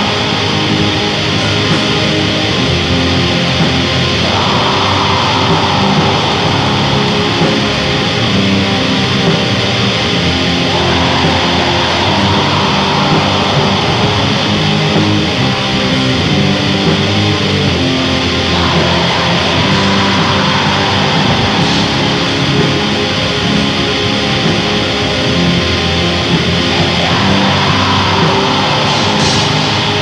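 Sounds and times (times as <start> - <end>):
distorted electric guitar: 0.0 - 30.0
drums: 0.0 - 30.0.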